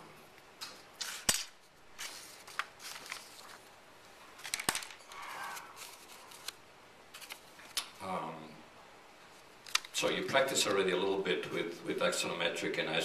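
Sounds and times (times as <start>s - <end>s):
paper rustling: 2.0s - 3.7s, 4.4s - 7.9s.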